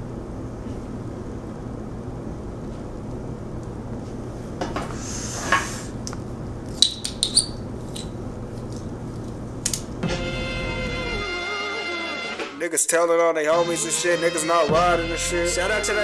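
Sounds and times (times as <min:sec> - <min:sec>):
breathy hiss: 0:04.8 - 0:06.0.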